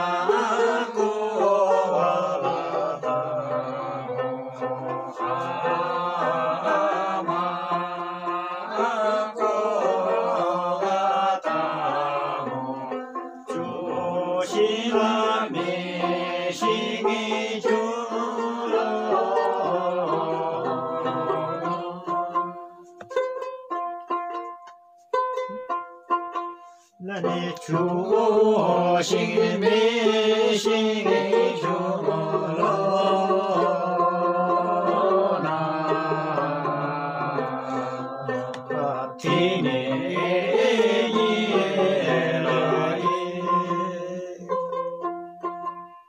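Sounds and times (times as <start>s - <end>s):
plucked string instrument: 0.0s - 46.0s
voices singing folk song: 0.0s - 46.0s.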